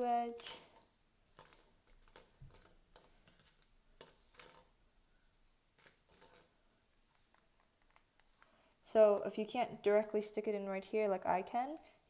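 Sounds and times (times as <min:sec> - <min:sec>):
plastic puzzle pieces clicking: 0:01.3 - 0:04.7, 0:05.8 - 0:06.6.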